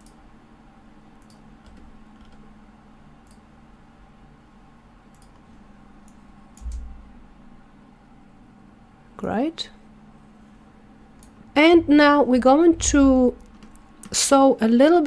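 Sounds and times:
computer mouse clicks: 0.0s - 0.2s, 1.2s - 2.5s, 3.2s - 3.4s, 5.1s - 6.9s, 11.2s - 11.4s
faint steady hum: 0.0s - 15.0s.

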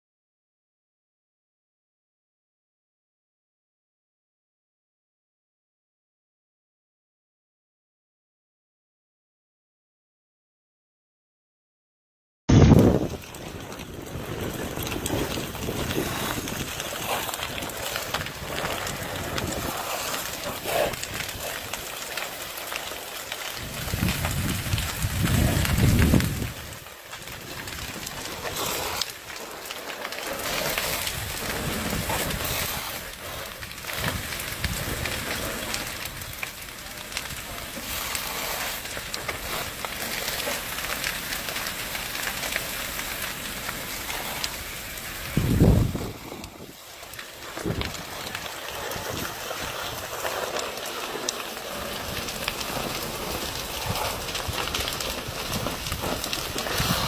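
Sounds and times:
fire crackling and hissing: 12.5s - 57.0s.

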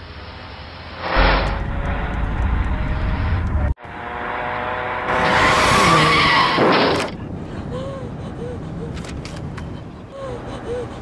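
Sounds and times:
car engine low rumble: 0.0s - 4.0s.

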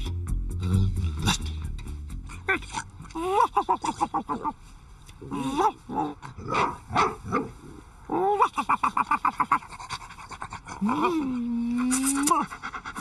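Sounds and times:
cartoon dog panting: 9.3s - 13.0s.

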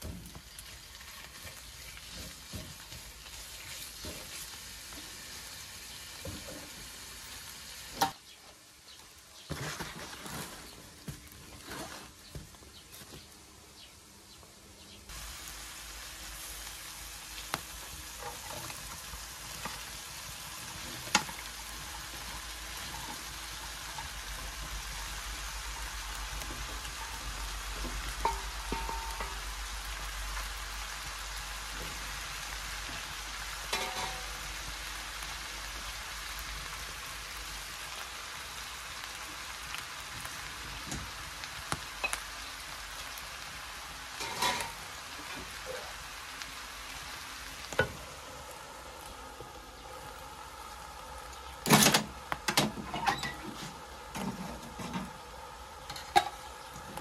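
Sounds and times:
beans sizzling in a pan: 0.0s - 57.0s.

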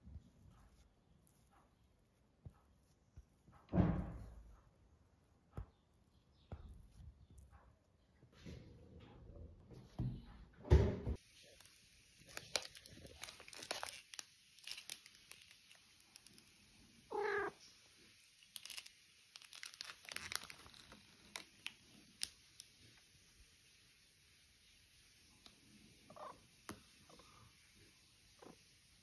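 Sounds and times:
thump: 3.7s - 4.6s, 10.0s - 11.2s
cellophane crinkling: 11.3s - 16.8s, 18.0s - 23.0s
cat meow: 17.1s - 17.6s.

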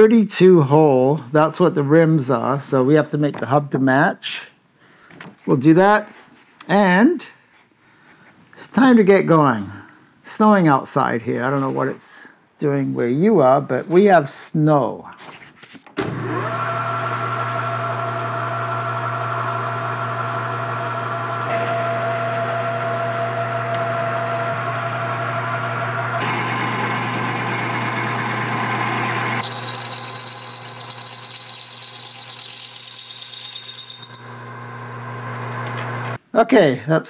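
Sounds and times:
drill cutting into metal bar: 16.2s - 36.2s
metal lathe running: 16.2s - 36.2s.

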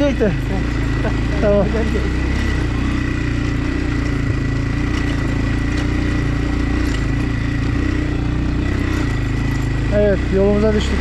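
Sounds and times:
motorbike engine running: 0.0s - 11.0s.

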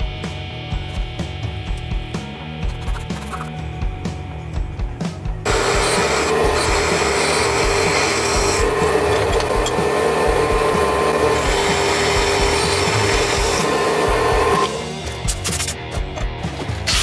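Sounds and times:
drill bit cutting steel: 5.5s - 14.8s
drill press humming: 5.5s - 14.8s.

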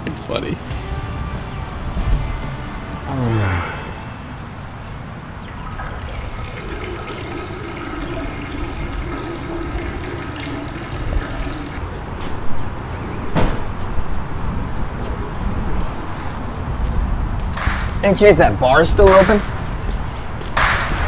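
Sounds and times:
toilet flushing: 5.5s - 11.8s.

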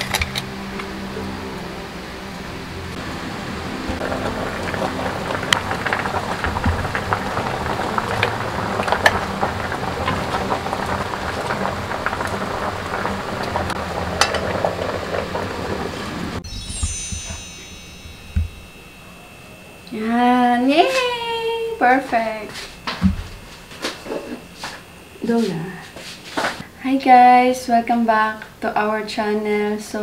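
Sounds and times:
pot bubbling with pops: 3.8s - 17.4s.

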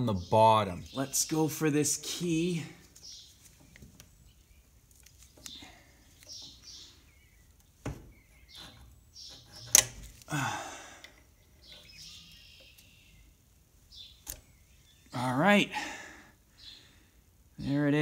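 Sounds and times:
hand tool scraping metal: 8.3s - 10.2s
sharp metallic click: 9.5s - 10.1s, 14.2s - 14.5s.

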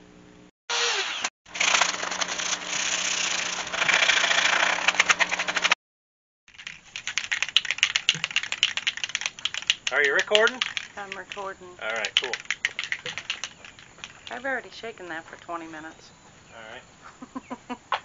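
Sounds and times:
mechanical noise with low hum: 0.0s - 0.5s
spray paint can rattling: 1.5s - 5.7s, 6.5s - 14.8s.

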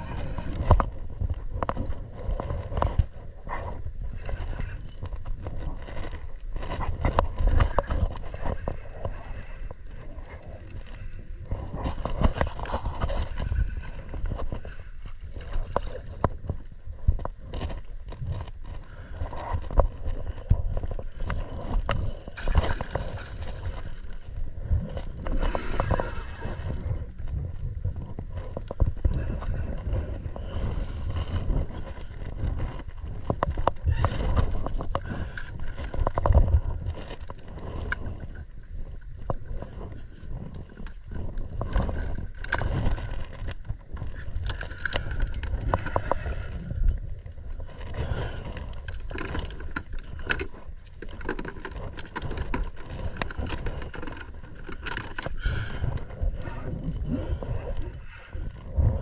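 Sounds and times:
wind rumbling on microphone: 0.0s - 59.0s
fishing reel clicks and knocks: 4.6s - 5.1s, 21.0s - 24.3s, 25.0s - 27.0s, 44.4s - 47.0s.

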